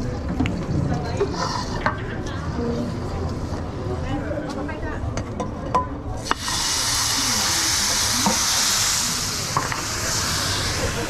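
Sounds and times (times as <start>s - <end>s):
food sizzling in a pan: 6.2s - 11.0s.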